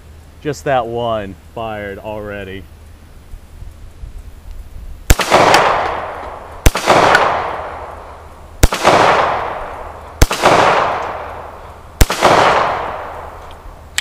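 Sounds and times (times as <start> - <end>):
pistol shots with echo: 5.1 - 13.4.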